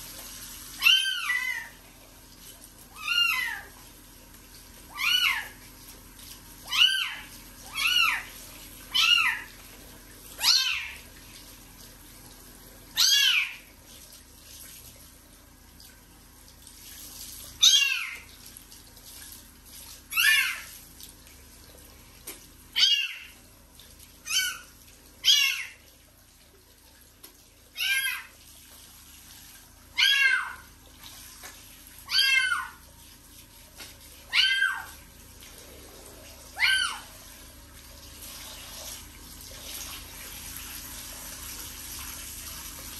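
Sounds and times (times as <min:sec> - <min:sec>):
kitten meowing: 0:30.0 - 0:30.6, 0:32.1 - 0:32.8.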